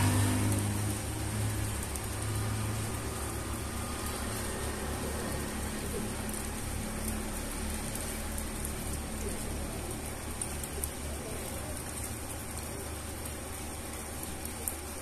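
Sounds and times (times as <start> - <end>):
rain on concrete: 0.0 - 15.0.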